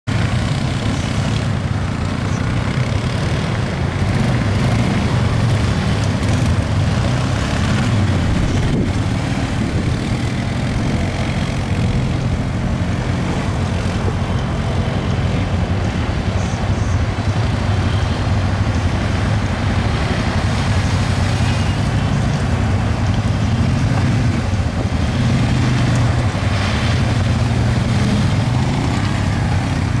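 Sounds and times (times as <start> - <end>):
atv engines running: 0.0 - 30.0
splashing through river water: 17.2 - 30.0.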